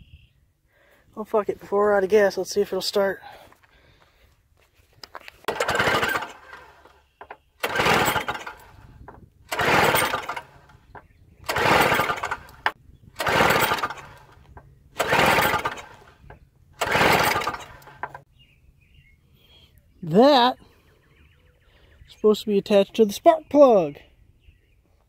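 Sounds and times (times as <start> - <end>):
recoil starter pull whirring rasp: 5.4 - 18.3.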